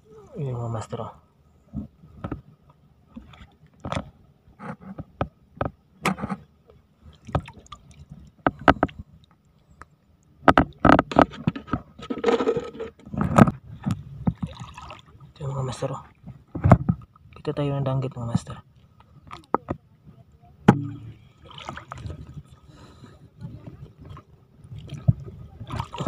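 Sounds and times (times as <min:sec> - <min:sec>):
water splashing and sloshing: 0:00.0 - 0:17.6, 0:18.2 - 0:26.0.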